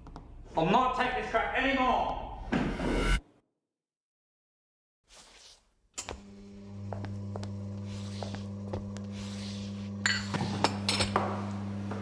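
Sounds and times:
cups and dishes clinking: 10.0s - 11.4s.

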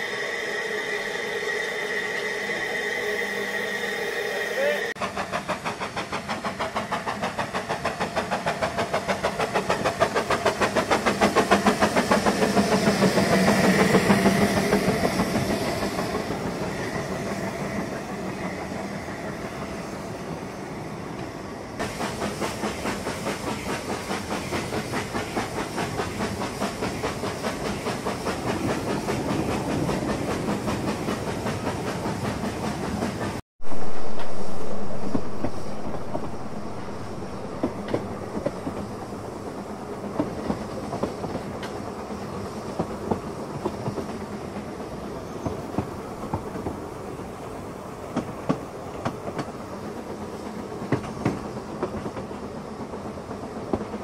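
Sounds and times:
rail noise: 0.0s - 54.0s
steam locomotive chuffing: 0.0s - 54.0s.

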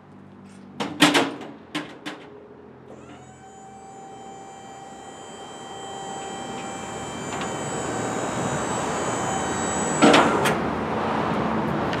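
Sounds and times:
hydraulic pump motor running: 2.9s - 10.9s.

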